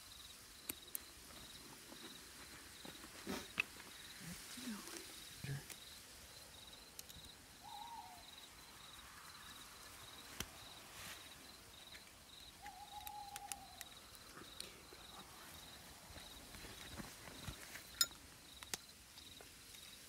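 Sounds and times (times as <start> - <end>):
pulsing insect chirp: 0.0 - 20.0
drawn-out tonal calls: 6.4 - 10.3, 12.4 - 15.9.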